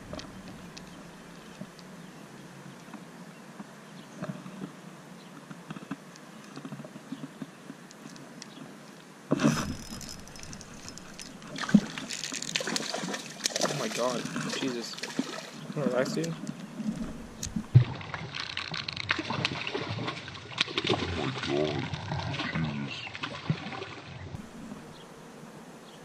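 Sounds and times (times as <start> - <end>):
fishing reel clicks: 9.7 - 12.6
low background hiss: 24.4 - 26.0.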